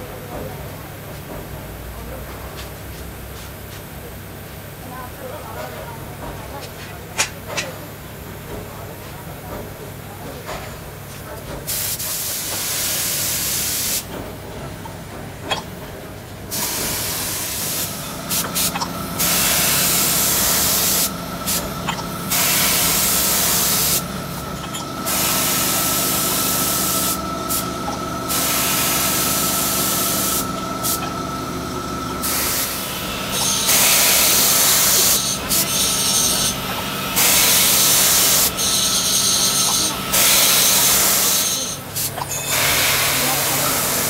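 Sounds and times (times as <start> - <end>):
spray gun hissing: 16.5 - 21.6, 22.3 - 24.1, 28.3 - 31.0.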